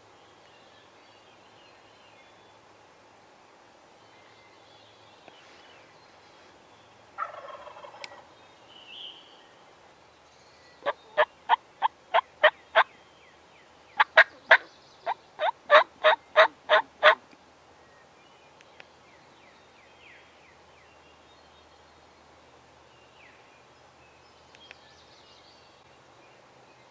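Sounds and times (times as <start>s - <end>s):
turkey hen yelps: 15.4s - 17.2s.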